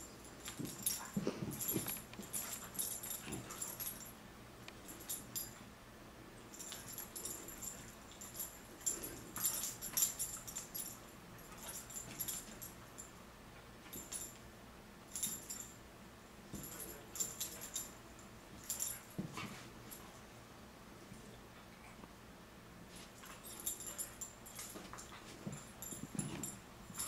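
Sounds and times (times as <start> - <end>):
metal collar tags jingling: 0.3 - 4.1.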